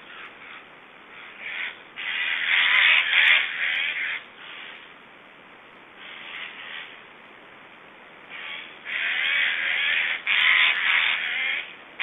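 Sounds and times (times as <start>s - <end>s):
stork nestlings hoarse calls: 8.3s - 11.7s.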